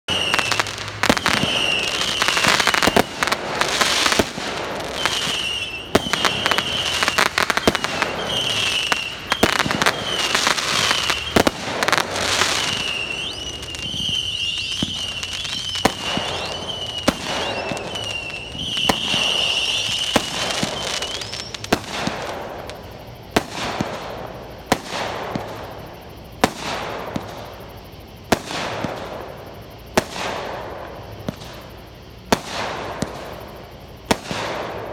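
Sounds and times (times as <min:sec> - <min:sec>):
high wavering whistle: 0:00.1 - 0:04.2, 0:04.8 - 0:21.7
short rising whistles: 0:00.1 - 0:21.8
fireworks bangs and crackling: 0:00.1 - 0:34.9.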